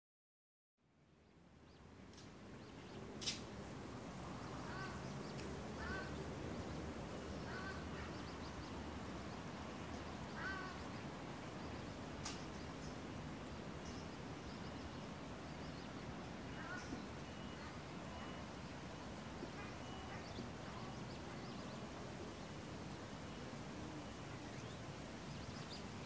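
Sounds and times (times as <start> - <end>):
outdoor background hiss: 0.8 - 26.0
short bird calls: 4.6 - 6.2, 10.3 - 11.0, 19.4 - 21.8
sharp click: 12.2 - 12.5.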